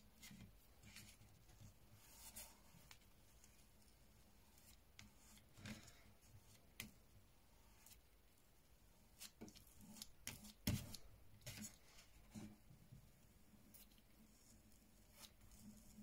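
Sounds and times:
paintbrush scratching on cardboard: 0:00.2 - 0:05.6, 0:14.2 - 0:16.0.

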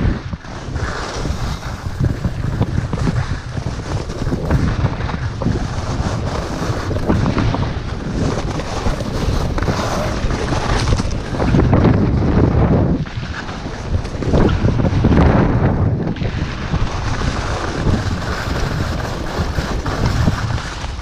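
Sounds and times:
skis sliding over snow: 0:00.0 - 0:21.0
wind rushing over microphone: 0:00.0 - 0:21.0.

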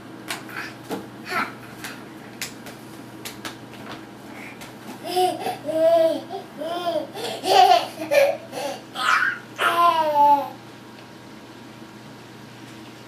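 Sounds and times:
baby babbling and laughing: 0:05.0 - 0:10.6.

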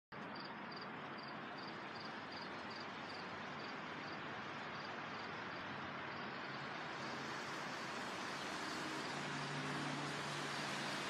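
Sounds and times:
wind through leafy trees: 0:00.2 - 0:11.0
insect chirping: 0:00.4 - 0:04.2.

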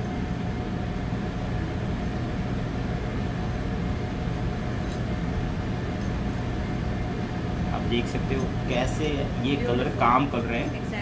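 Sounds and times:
kitchen ventilation hum: 0:00.0 - 0:11.0.

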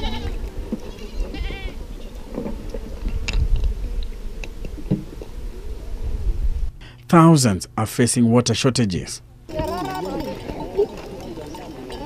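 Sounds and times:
goats bleating: 0:00.0 - 0:02.2.

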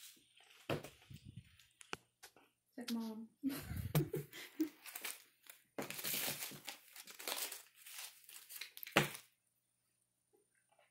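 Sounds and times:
paper bills crinkling and rustling: 0:04.6 - 0:09.3.

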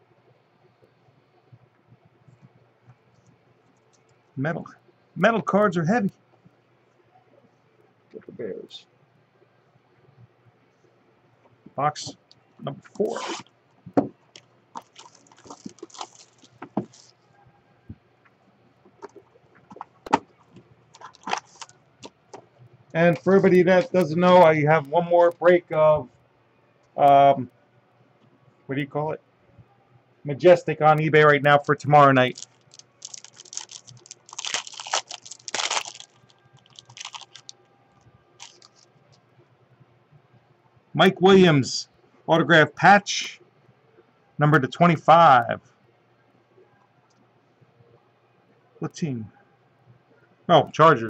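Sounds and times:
cardboard packaging rustling: 0:14.8 - 0:17.1, 0:19.1 - 0:21.8, 0:31.5 - 0:37.5, 0:38.4 - 0:38.9
foil wrapper tearing and crinkling: 0:14.8 - 0:17.1, 0:21.0 - 0:21.8, 0:31.6 - 0:37.5, 0:38.4 - 0:38.9.

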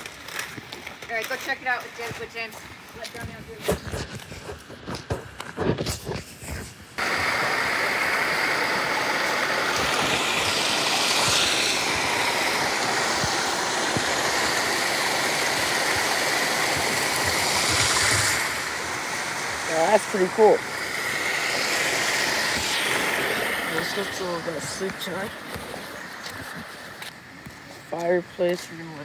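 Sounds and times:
rushing water: 0:07.0 - 0:27.5.

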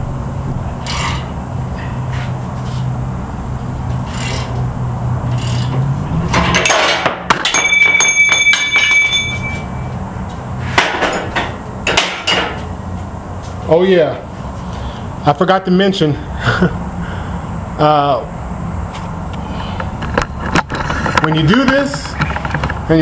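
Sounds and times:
metal ringing: 0:05.3 - 0:10.1
metal pieces clattering on workbench: 0:06.3 - 0:09.7.

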